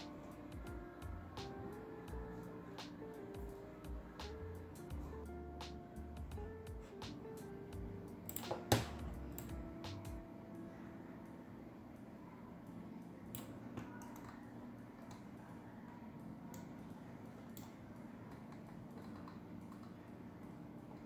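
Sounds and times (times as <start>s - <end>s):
steady low hum: 0.0s - 21.0s
keyboard and mouse clicks: 8.3s - 10.2s, 13.3s - 15.4s, 17.4s - 20.0s.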